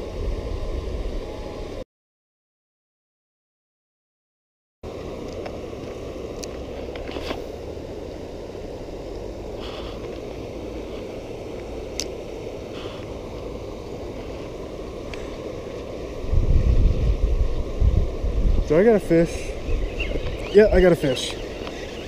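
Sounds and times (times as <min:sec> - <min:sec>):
river water flowing: 0:04.9 - 0:22.0.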